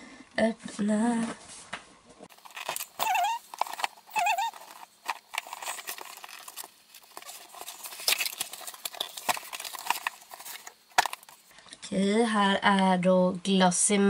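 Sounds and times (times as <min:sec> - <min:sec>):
cardboard box and paper rustling: 0:02.3 - 0:11.5.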